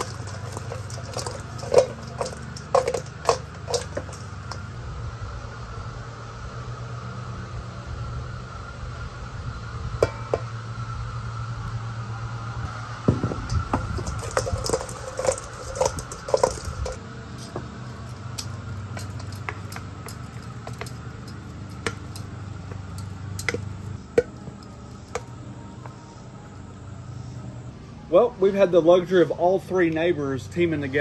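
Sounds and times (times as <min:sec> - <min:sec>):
clanks against metal bowl: 0:00.0 - 0:04.7, 0:13.1 - 0:17.7, 0:18.9 - 0:24.4
lawn mowers humming: 0:00.0 - 0:31.0.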